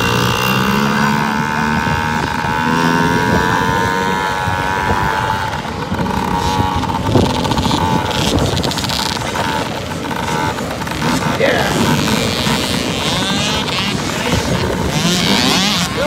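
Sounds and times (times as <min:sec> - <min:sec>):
motocross bike engines racing: 0:00.0 - 0:16.0.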